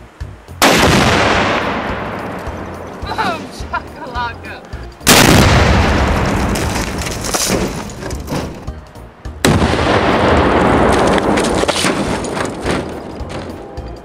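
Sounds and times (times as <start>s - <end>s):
explosion rumbling: 0.6s - 2.7s, 5.0s - 7.8s, 9.4s - 13.4s.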